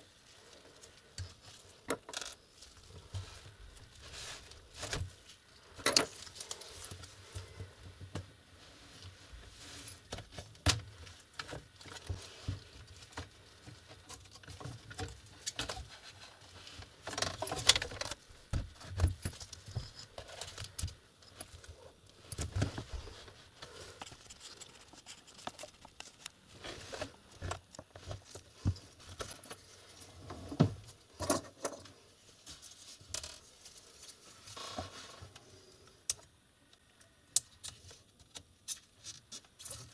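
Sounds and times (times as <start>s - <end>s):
hands handling plastic laptop case: 10.0s - 29.7s.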